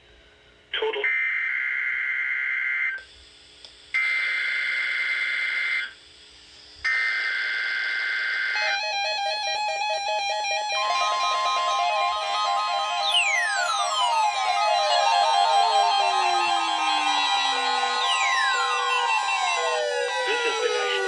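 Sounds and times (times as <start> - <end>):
buzzing digital data tones: 10.6 - 21.0.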